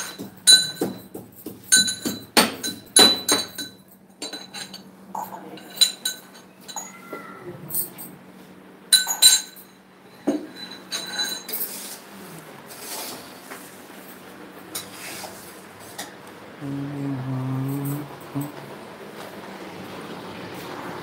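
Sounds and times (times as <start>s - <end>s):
utensils clinking against pans: 0.0s - 8.1s, 8.9s - 12.0s
low hum: 16.5s - 21.0s.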